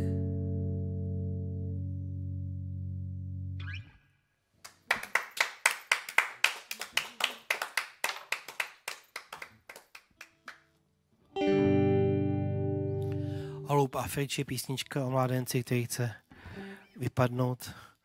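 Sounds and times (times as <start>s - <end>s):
electric guitar chord ringing: 0.0s - 3.5s, 11.4s - 13.7s
sparse clapping: 4.6s - 10.6s.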